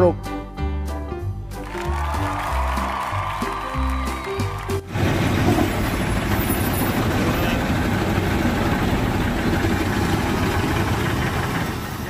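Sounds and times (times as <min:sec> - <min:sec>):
diesel engine under load: 0:04.9 - 0:12.0
wheels churning through mud: 0:04.9 - 0:12.0.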